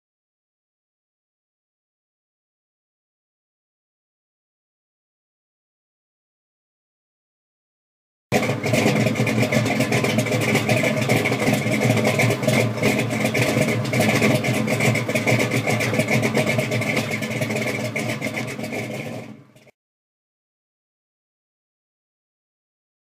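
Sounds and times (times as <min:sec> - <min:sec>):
car engine with pulsing exhaust: 0:08.3 - 0:19.7.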